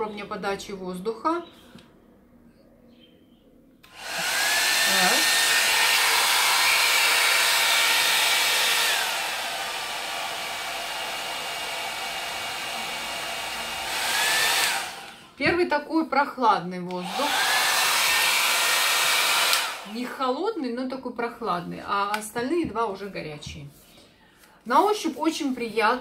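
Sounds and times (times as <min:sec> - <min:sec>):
hot-air brush motor whine: 0:03.9 - 0:15.2, 0:17.0 - 0:19.9.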